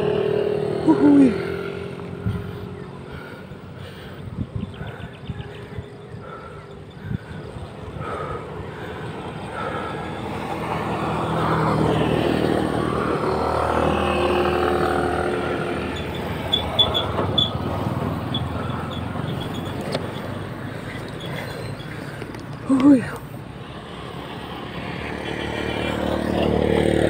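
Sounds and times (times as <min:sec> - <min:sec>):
vehicle engine passing: 0:00.0 - 0:27.0.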